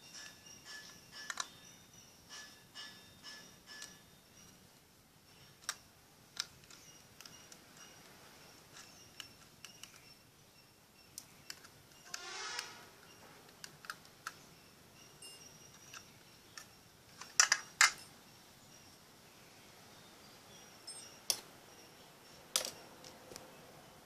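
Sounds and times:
short scrape: 12.1s - 13.0s.

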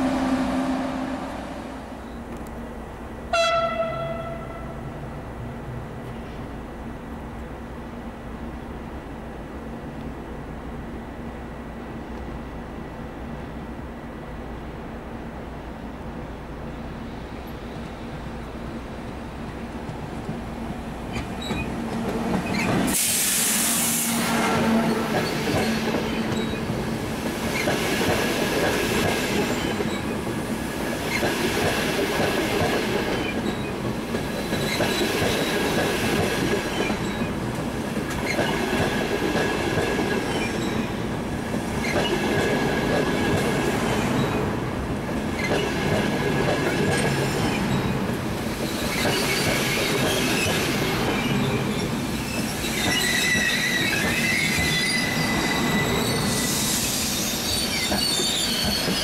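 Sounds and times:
train wheels rumbling on rail: 0.0s - 59.0s
metallic wheel squeal: 51.2s - 59.0s.

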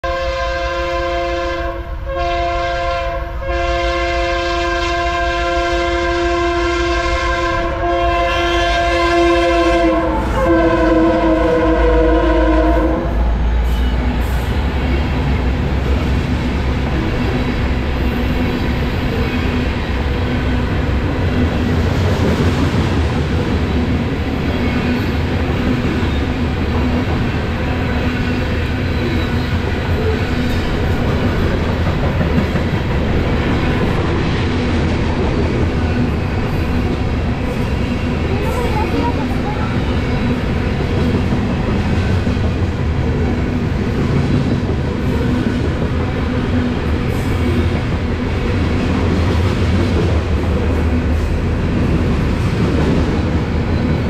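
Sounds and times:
locomotive air horn blasts: 0.0s - 13.3s
train cars rumbling over rails: 0.0s - 54.0s.

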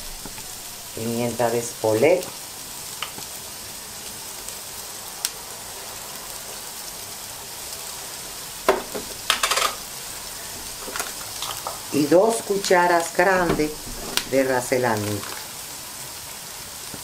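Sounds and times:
onion frying in oil: 0.0s - 17.0s.

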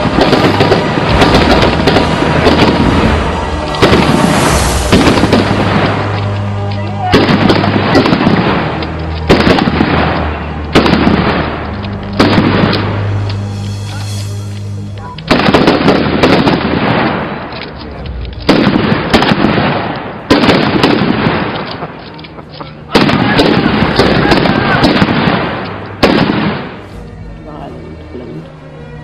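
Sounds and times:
rifle fire: 0.0s - 6.2s, 7.1s - 13.0s, 15.3s - 17.7s, 18.4s - 22.1s, 22.9s - 26.8s
explosions: 0.0s - 26.9s
background music: 0.0s - 29.0s.

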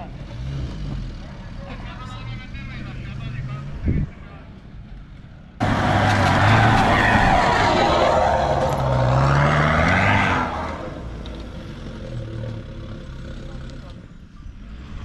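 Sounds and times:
tyres on gravel: 5.6s - 12.5s
truck engine revving: 5.6s - 15.0s.

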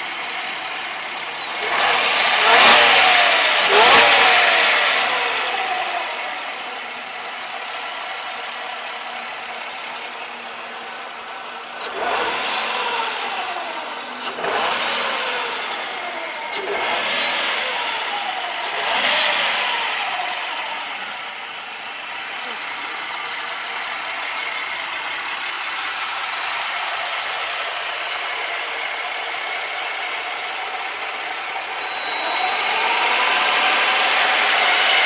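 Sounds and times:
car engine idling and revving: 0.0s - 35.0s
thin high whine: 21.0s - 34.7s.

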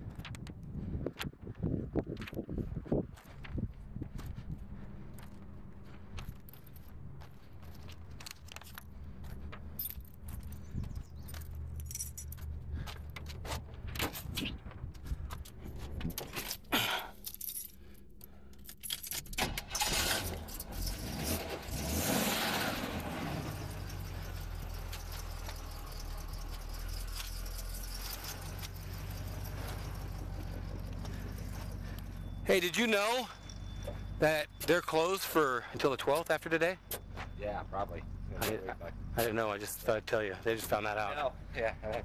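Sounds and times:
footsteps on gravel: 0.0s - 16.1s, 28.4s - 34.2s
keys jangling: 7.6s - 8.9s, 9.7s - 13.3s, 15.4s - 19.5s, 23.7s - 32.0s
engine idling: 22.8s - 42.0s.

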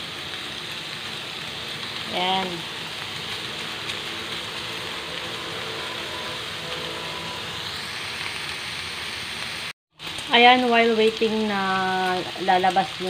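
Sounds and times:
pork sizzling in oil: 0.0s - 13.0s.

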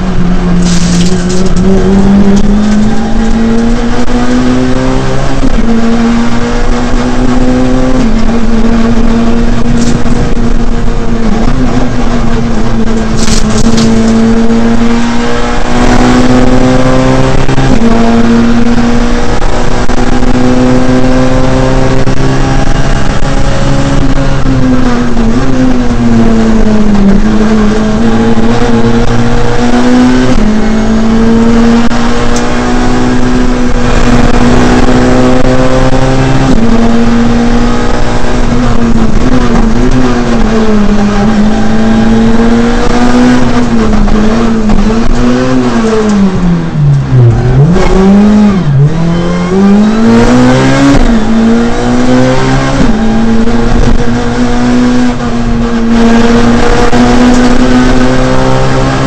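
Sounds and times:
rally car engine revving high: 0.0s - 59.0s
road and tyre noise: 0.0s - 59.0s.

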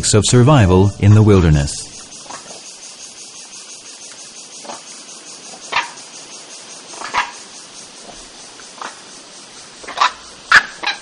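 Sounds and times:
insects chorus: 0.0s - 11.0s
monkeys barking calls: 4.5s - 9.1s, 9.8s - 11.0s.

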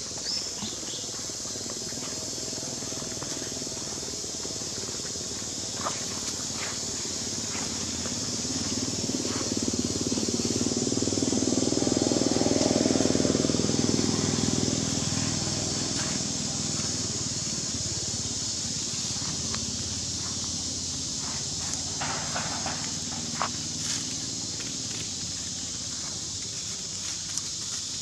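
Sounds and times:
steady high hiss: 0.0s - 28.0s
vehicle engine passing by: 1.5s - 26.8s.

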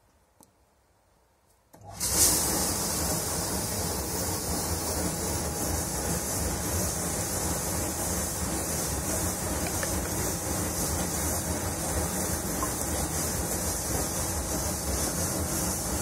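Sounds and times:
rush of water in dishwasher: 1.9s - 16.0s.

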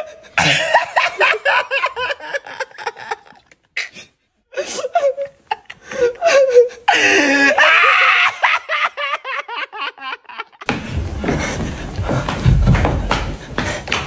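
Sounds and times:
man laughing hard: 0.0s - 3.6s, 4.6s - 10.7s
scuffling and low thumps: 10.7s - 14.0s.

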